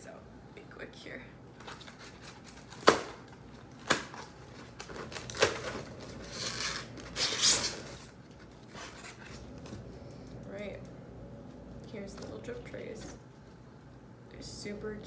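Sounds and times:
packaging snapping: 0:01.6 - 0:09.4
packaging rustling: 0:01.6 - 0:09.9.

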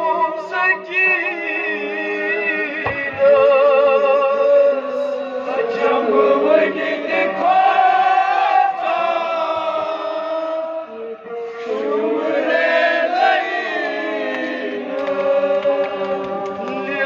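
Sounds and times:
man chanting into a microphone: 0:00.0 - 0:06.8, 0:15.6 - 0:17.0
group of men singing along: 0:01.2 - 0:17.0.

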